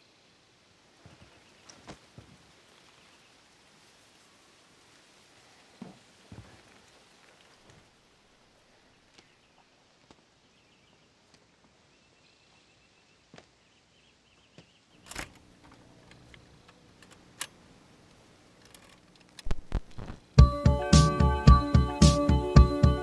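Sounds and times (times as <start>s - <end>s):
record player hum: 15.0s - 23.0s.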